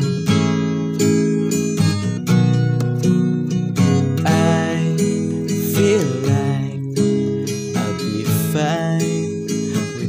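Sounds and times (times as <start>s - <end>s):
acoustic guitar strumming: 0.0s - 10.0s
person singing: 4.0s - 10.0s.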